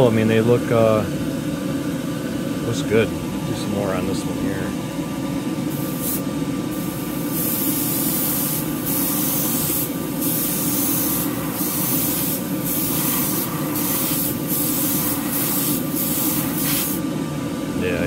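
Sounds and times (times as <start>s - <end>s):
exhaust fan humming: 0.0s - 18.0s
airbrush hissing: 5.7s - 17.0s.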